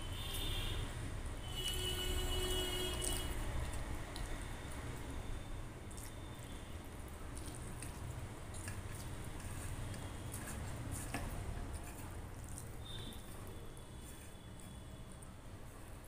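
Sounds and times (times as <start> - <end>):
quiet chewing: 2.9 - 5.1, 5.8 - 16.0.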